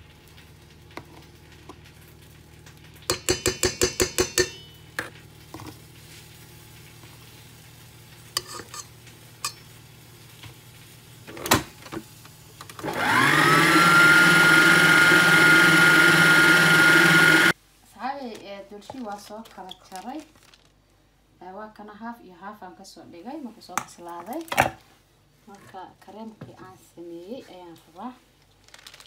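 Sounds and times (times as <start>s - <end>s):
stand mixer motor whining: 12.8s - 17.5s.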